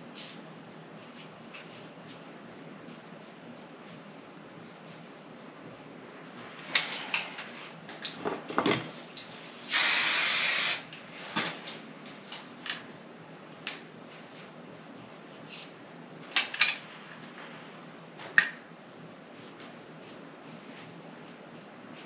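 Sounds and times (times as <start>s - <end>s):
aerosol spray hiss: 9.7s - 10.8s.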